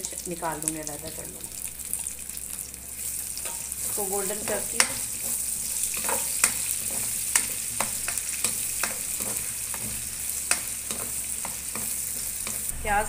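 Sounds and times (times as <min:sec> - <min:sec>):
onions sizzling in hot oil: 0:00.0 - 0:13.0
spatula tapping and scraping pan: 0:03.4 - 0:12.7.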